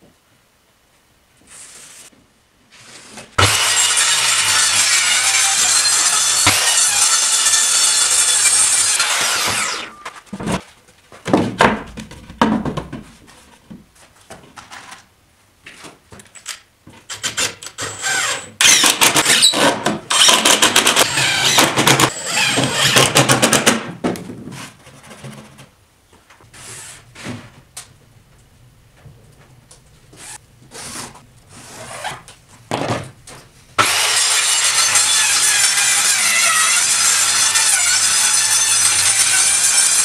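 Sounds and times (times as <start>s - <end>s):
circular saw cutting board: 3.0s - 10.1s, 33.8s - 40.0s
board knocking: 11.2s - 13.8s.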